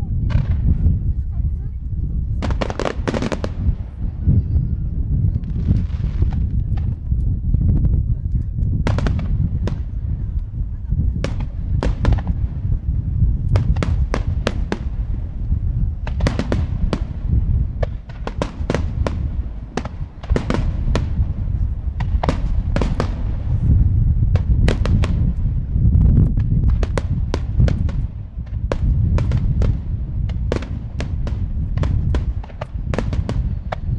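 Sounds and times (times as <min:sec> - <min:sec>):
deep rumble of firework booms: 0:00.0 - 0:33.9
firework cracks: 0:02.4 - 0:04.0, 0:08.8 - 0:10.5, 0:11.2 - 0:25.6, 0:26.3 - 0:33.9.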